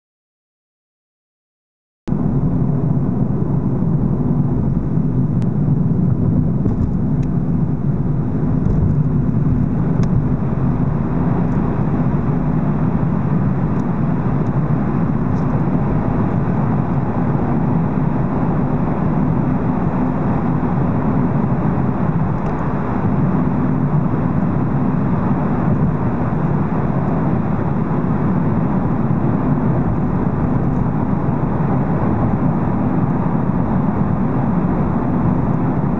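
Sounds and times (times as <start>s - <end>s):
engine and tyre rumble: 2.1s - 35.9s.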